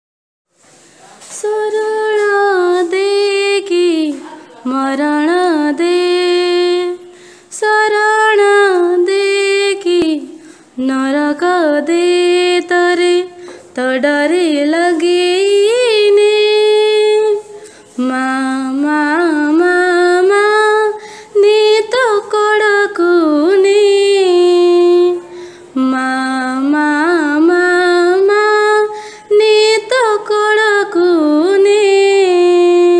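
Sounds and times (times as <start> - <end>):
woman singing: 1.3 - 32.9.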